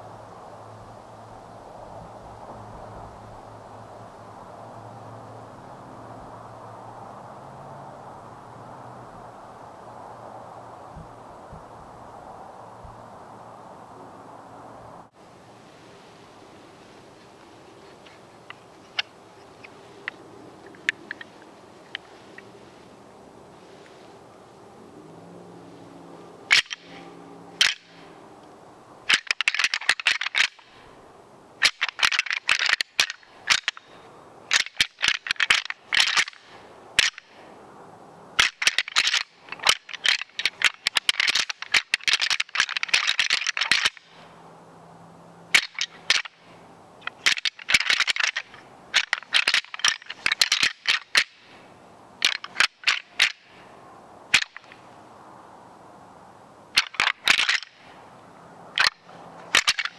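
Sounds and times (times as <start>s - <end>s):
deer rattle bag clattering: 47.0s - 51.4s, 58.8s - 59.9s.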